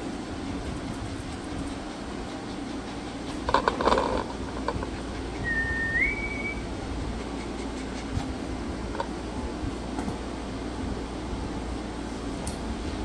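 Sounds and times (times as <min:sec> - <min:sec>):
low hum: 0:00.0 - 0:13.0
two-note whistle: 0:05.4 - 0:06.6.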